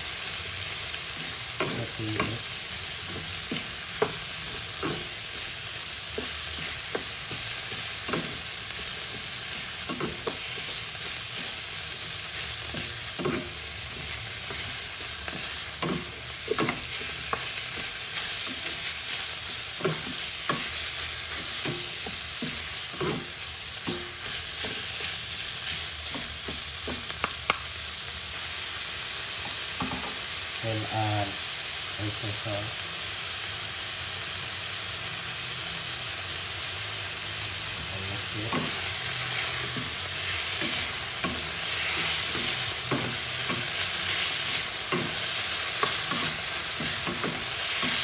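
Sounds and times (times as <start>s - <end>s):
meat sizzling in oil: 0.0s - 48.0s
spatulas scraping and tapping pan: 12.7s - 19.2s, 19.8s - 27.6s, 38.4s - 48.0s.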